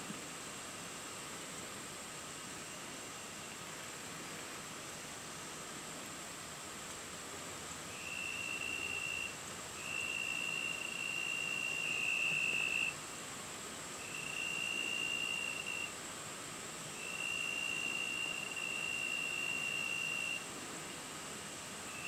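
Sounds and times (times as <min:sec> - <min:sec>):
faint high hiss: 0:00.0 - 0:22.0
insect trilling: 0:14.0 - 0:15.9, 0:17.0 - 0:20.4.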